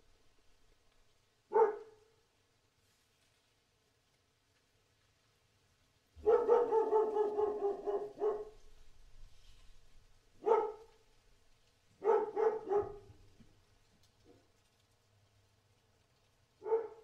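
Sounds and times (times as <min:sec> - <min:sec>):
dog barking: 0:01.5 - 0:02.1, 0:06.2 - 0:08.6, 0:10.4 - 0:11.0, 0:12.0 - 0:13.3, 0:16.6 - 0:17.0.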